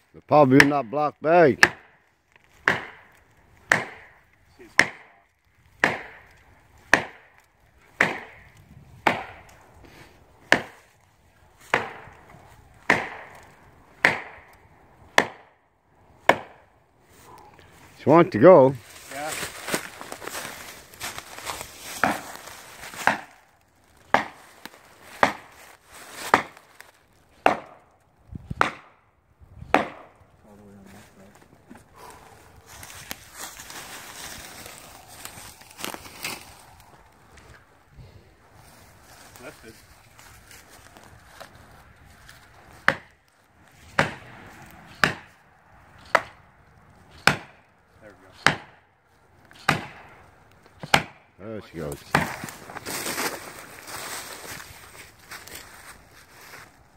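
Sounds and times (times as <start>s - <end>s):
hammer striking wedges: 1.6s - 1.9s, 2.6s - 3.1s, 3.7s - 4.2s, 4.8s - 5.2s, 5.8s - 6.3s, 6.9s - 7.3s, 8.0s - 8.4s, 9.1s - 9.4s, 11.7s - 12.1s, 12.9s - 13.4s, 14.0s - 14.5s, 15.2s - 15.5s, 16.2s - 16.6s, 23.0s - 23.4s, 24.1s - 24.4s, 25.2s - 25.5s, 27.4s - 27.8s, 28.6s - 29.0s, 29.7s - 30.1s, 42.8s - 43.1s, 44.0s - 44.2s, 44.9s - 45.3s, 46.0s - 46.4s, 47.1s - 47.6s, 48.3s - 48.8s, 49.6s - 50.1s, 50.8s - 51.2s.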